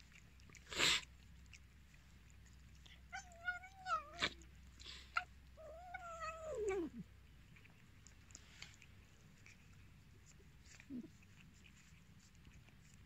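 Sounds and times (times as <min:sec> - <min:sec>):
cat meowing: 0:03.1 - 0:04.4, 0:05.2 - 0:07.0.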